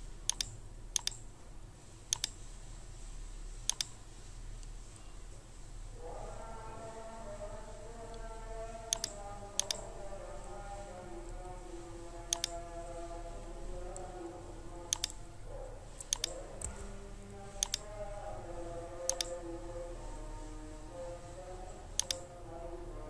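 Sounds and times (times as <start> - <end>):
computer mouse clicks: 0.3 - 1.2, 2.1 - 2.4, 3.7 - 4.0, 8.9 - 9.9, 12.3 - 12.6, 14.9 - 15.2, 16.0 - 16.8, 17.6 - 17.9, 19.1 - 19.4, 22.0 - 22.3.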